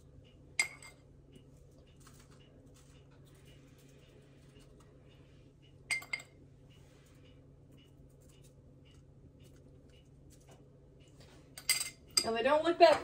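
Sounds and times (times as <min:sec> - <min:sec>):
low steady hum: 0:00.0 - 0:13.0
metal spoon clinking glass bowl: 0:00.6 - 0:01.0, 0:05.9 - 0:06.4, 0:11.6 - 0:13.0.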